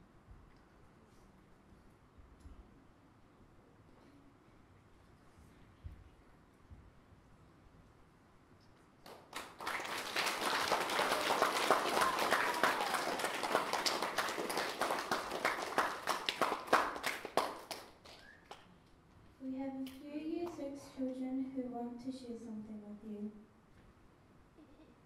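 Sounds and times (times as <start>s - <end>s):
children applauding: 9.1s - 18.6s.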